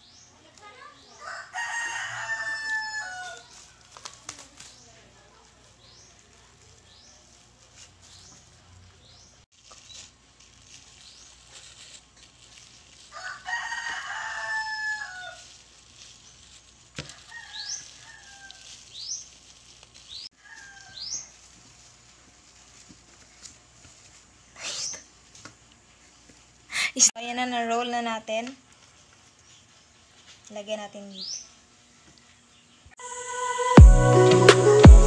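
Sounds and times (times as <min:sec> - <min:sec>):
rooster crowing: 0:01.2 - 0:03.6, 0:13.1 - 0:15.4, 0:17.0 - 0:18.8, 0:20.3 - 0:21.2.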